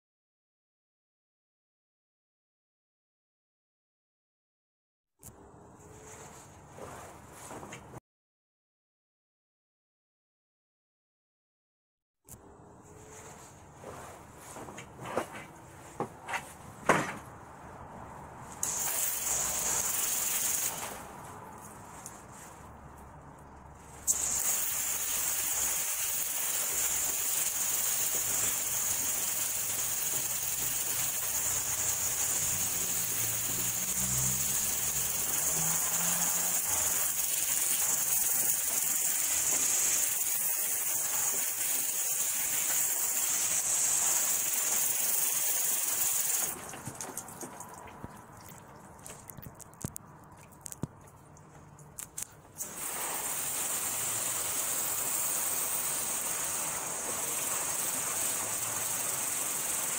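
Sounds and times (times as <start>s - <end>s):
hose spraying water on tires: 18.5s - 49.3s, 52.0s - 59.9s.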